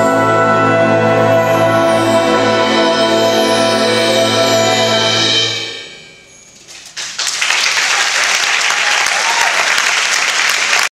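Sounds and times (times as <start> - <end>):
brass band chord: 0.0 - 5.8
audience applause: 7.0 - 10.9.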